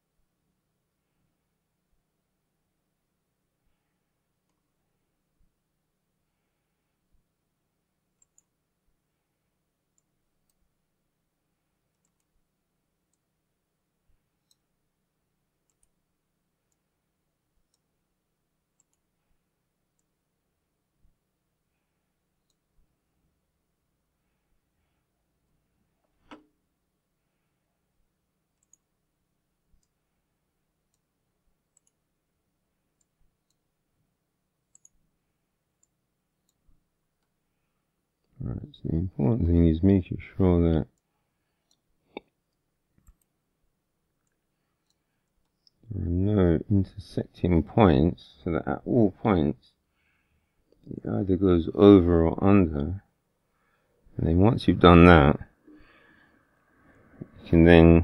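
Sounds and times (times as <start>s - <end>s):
computer mouse clicks: 8.2s - 8.6s, 11.9s - 12.4s, 15.6s - 16.0s, 18.8s - 19.1s, 28.6s - 28.9s, 31.7s - 32.0s, 34.7s - 35.0s, 35.8s - 36.6s, 41.0s - 43.4s.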